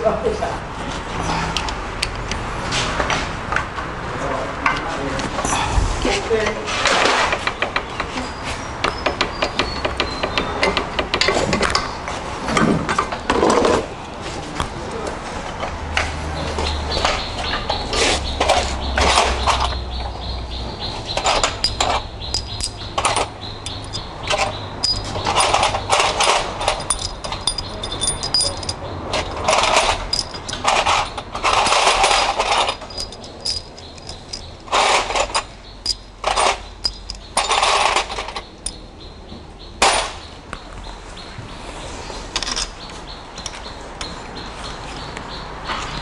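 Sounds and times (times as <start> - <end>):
sharp metal click: 21.1 - 38.8
metal tools clinking and scraping: 21.1 - 38.9.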